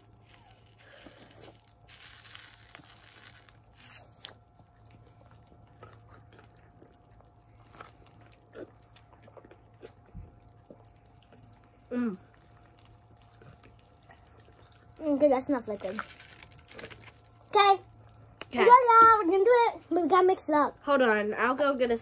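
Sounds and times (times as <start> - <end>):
candy rustling and crackling: 0.0 - 9.0, 10.9 - 17.6.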